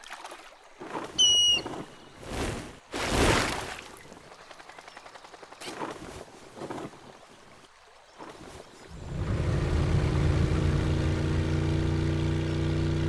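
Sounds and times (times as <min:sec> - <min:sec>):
motor engine running: 0:08.9 - 0:13.0.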